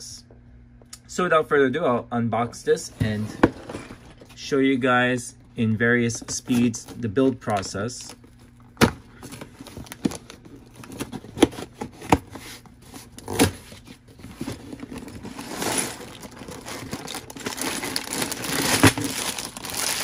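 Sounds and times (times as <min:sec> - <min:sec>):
plastic bags crinkling: 0:06.2 - 0:20.0.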